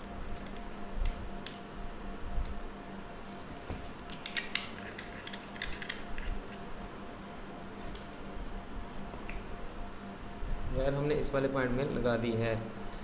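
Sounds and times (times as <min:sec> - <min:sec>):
faint steady hum: 0:00.0 - 0:13.0
screwdriver scraping on screw: 0:04.7 - 0:06.6.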